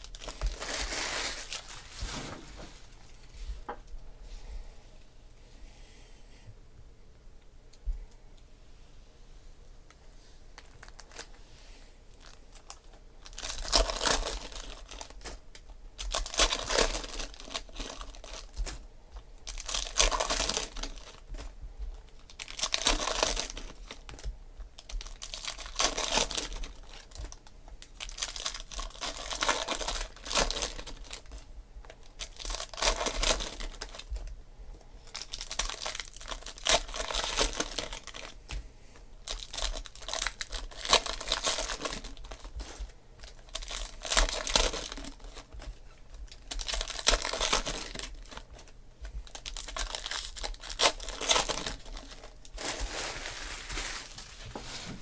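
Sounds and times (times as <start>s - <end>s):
foil packs tearing and crinkling: 0.0s - 2.6s, 10.6s - 11.3s, 12.2s - 18.8s, 19.4s - 21.5s, 22.1s - 34.3s, 35.0s - 38.4s, 39.2s - 45.6s, 46.3s - 55.0s.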